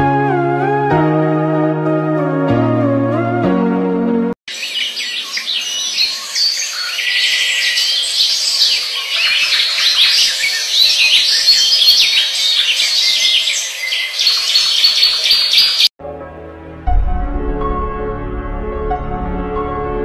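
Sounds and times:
lovebirds chirping and squawking: 4.5s - 15.9s.

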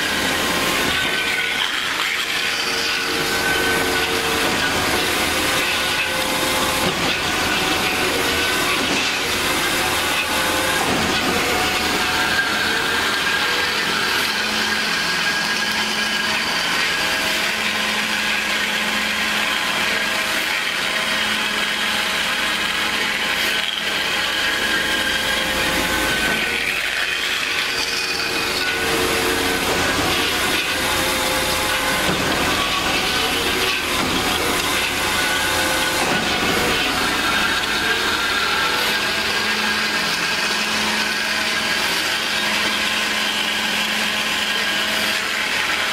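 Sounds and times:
band saw cutting metal: 0.0s - 45.9s
saw blade squeal: 0.0s - 45.9s.

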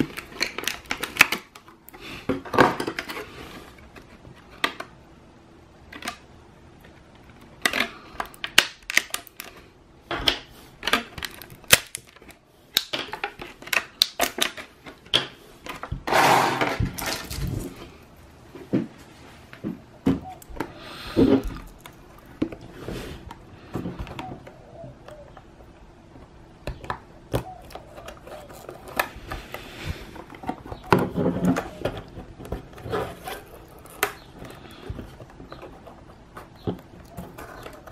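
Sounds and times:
plastic packaging clicks and crinkles: 0.0s - 3.3s, 5.9s - 16.0s, 26.7s - 37.9s.

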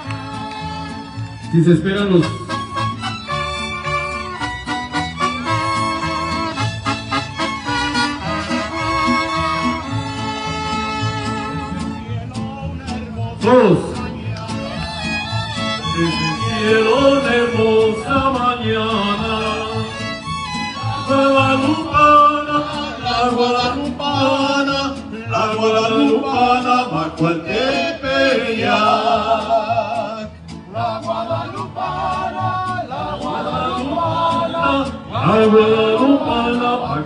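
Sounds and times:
men singing: 0.0s - 1.1s, 11.5s - 37.0s
violins: 0.0s - 13.0s, 14.3s - 25.1s
guitars: 0.0s - 37.0s.

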